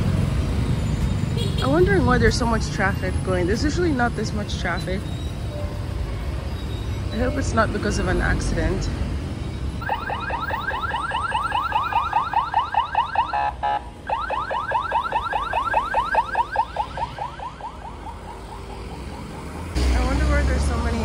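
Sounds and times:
traffic noise: 0.0 - 21.0
siren yelping: 9.8 - 19.8
steady siren tone: 9.8 - 19.8.

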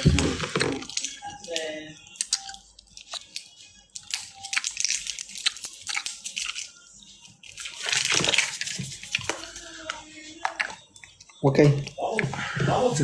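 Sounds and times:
crunching and chewing candy: 0.0 - 9.6.

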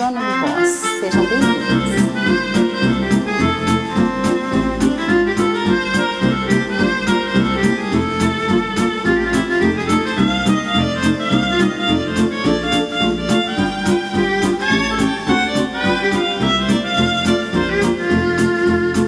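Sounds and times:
instrumental music with steady beat: 0.0 - 19.0.

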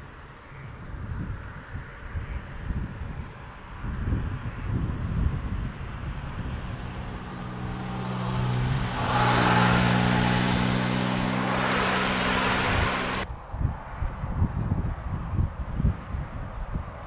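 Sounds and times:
tyre and road noise: 0.0 - 17.0
wind rumble on microphone: 0.0 - 17.0
vehicle engine running: 5.7 - 13.2.

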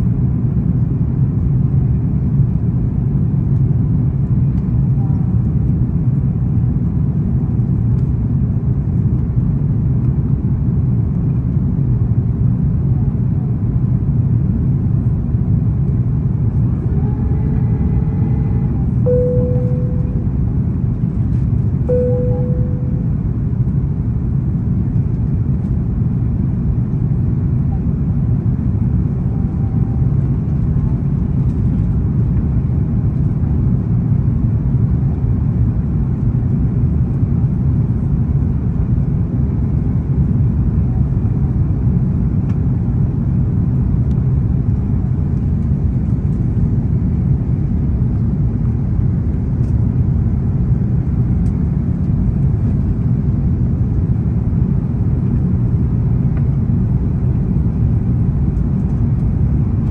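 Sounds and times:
airliner cabin rumble: 0.0 - 59.9.

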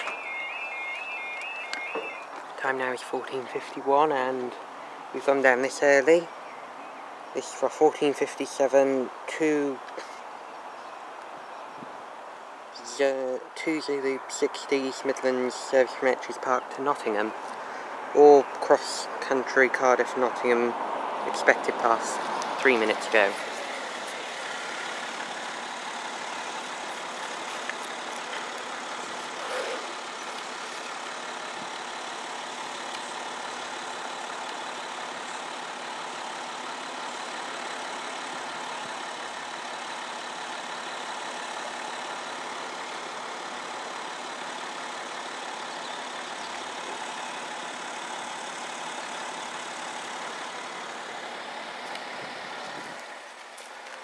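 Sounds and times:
road traffic noise: 0.0 - 54.0.

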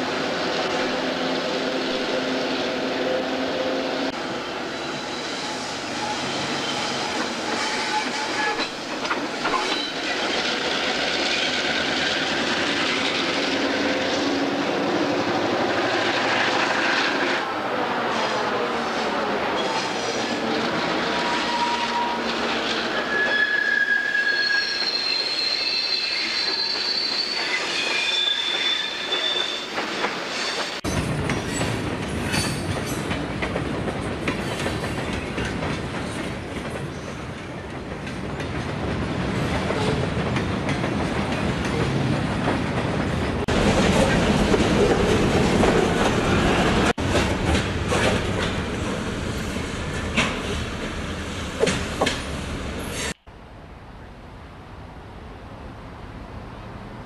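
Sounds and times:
wheels rolling on rail: 4.8 - 17.4, 24.4 - 53.2
model train wheel squeals: 23.0 - 29.8.

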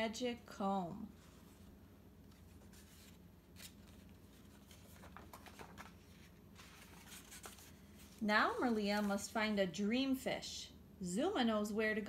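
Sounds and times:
paper rustling: 1.2 - 9.5.

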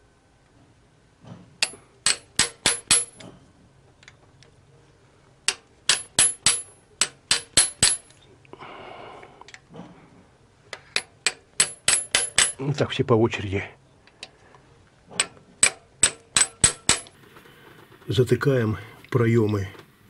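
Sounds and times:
hammer tapping steel socket: 5.5 - 8.2, 15.2 - 17.2.

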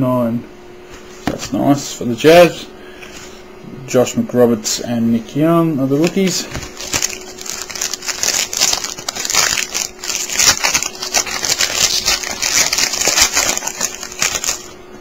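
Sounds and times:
foil wrapper crinkling: 6.0 - 14.8.

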